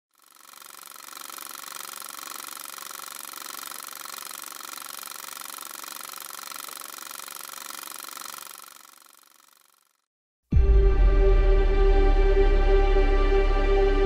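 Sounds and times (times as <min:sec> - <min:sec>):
film projector whirring: 0:00.1 - 0:10.1.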